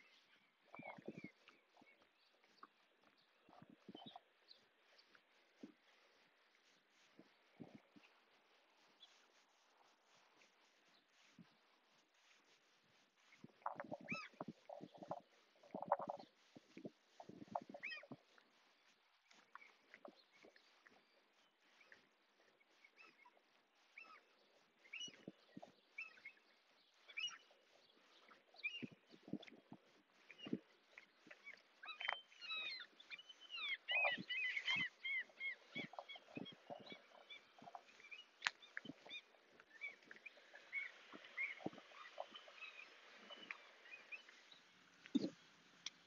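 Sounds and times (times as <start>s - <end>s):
birds chirping and whistling: 0.0s - 2.0s, 13.7s - 16.3s, 23.0s - 29.5s, 31.3s - 45.4s.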